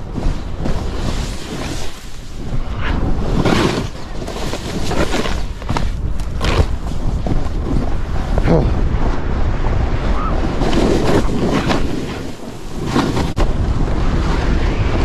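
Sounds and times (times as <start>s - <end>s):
snowboard scraping over snow: 0.0s - 15.0s
wind on microphone: 0.0s - 15.0s.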